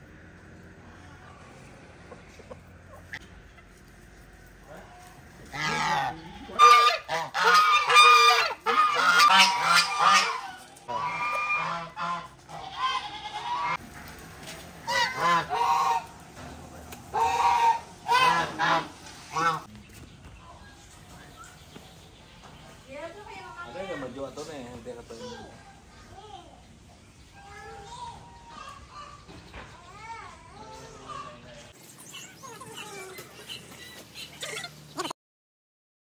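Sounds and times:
geese honking: 0:02.0 - 0:13.9, 0:14.8 - 0:16.3, 0:17.1 - 0:19.7.

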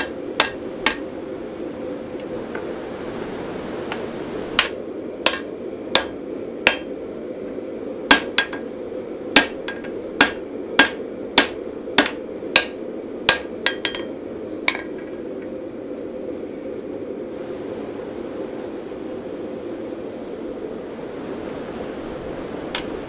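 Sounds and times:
hammer striking metal on anvil: 0:00.0 - 0:01.0, 0:04.6 - 0:06.9, 0:08.1 - 0:08.6, 0:09.4 - 0:14.1
low rushing noise: 0:00.0 - 0:13.6, 0:14.2 - 0:23.0.

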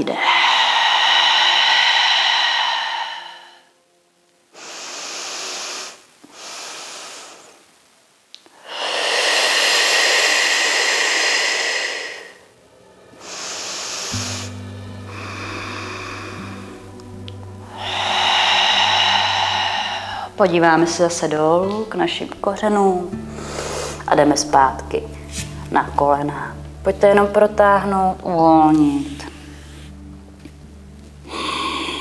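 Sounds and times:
woman breathing deeply: 0:00.1 - 0:07.6, 0:08.5 - 0:21.6, 0:23.1 - 0:24.1, 0:31.2 - 0:32.0.

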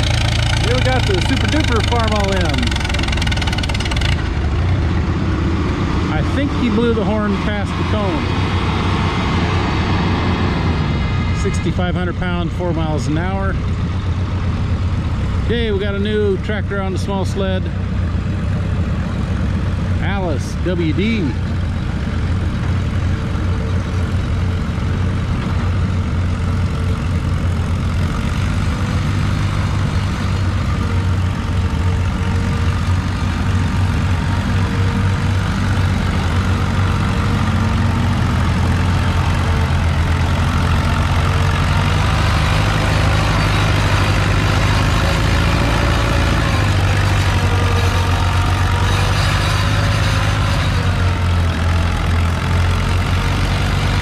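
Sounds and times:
tractor engine running under load: 0:00.0 - 0:54.0.

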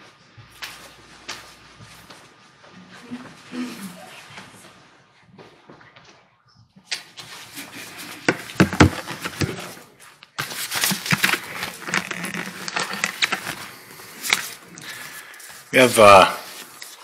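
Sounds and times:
paper rustling: 0:07.0 - 0:17.0.

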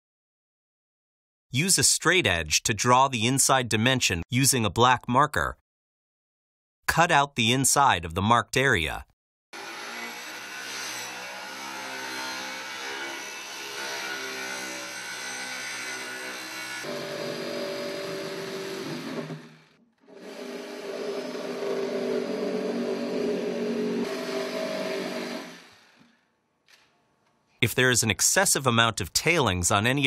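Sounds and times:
handheld power tool running: 0:09.6 - 0:26.2
circular saw cutting: 0:09.6 - 0:26.3.

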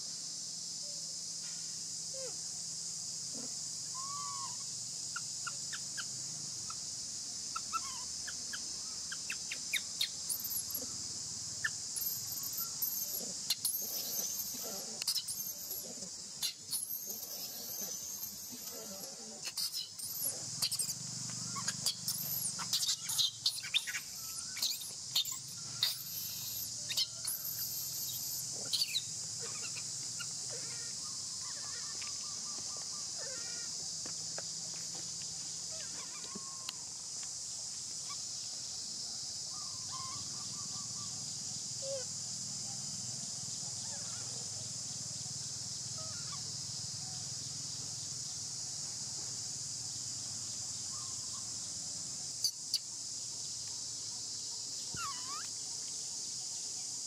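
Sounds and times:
insects droning: 0:00.0 - 0:57.0
shrill squeaks and chirps: 0:09.2 - 0:10.8, 0:12.0 - 0:32.2, 0:35.7 - 0:36.7, 0:55.0 - 0:55.5.

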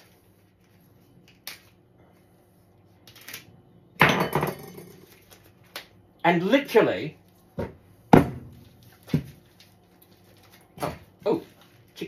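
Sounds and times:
plastic crinkle: 0:08.6 - 0:12.0.

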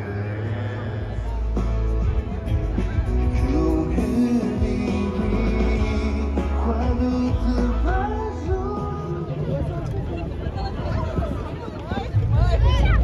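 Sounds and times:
live rock band playing: 0:00.0 - 0:09.5
heavy bass line: 0:00.0 - 0:09.7
person singing: 0:03.2 - 0:09.4.

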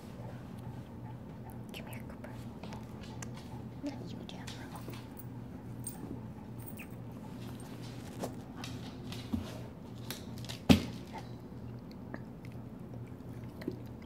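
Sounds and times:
dog panting: 0:00.0 - 0:09.8.

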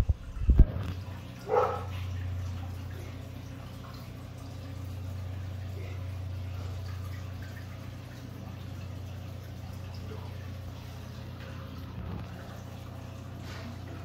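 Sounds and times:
aquarium filter humming: 0:00.0 - 0:14.0
water trickling and dripping: 0:00.0 - 0:14.0.

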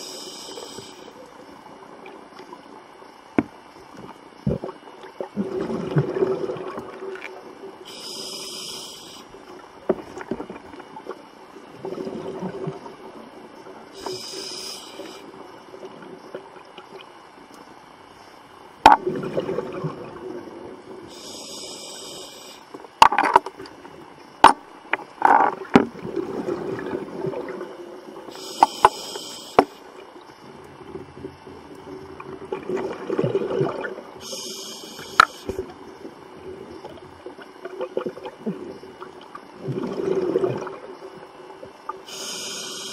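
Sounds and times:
bubbly hiss of exhaled air: 0:00.0 - 0:01.2, 0:13.9 - 0:15.4, 0:19.1 - 0:22.7, 0:28.3 - 0:29.8, 0:42.0 - 0:42.9
steady low hum: 0:00.0 - 0:42.9.

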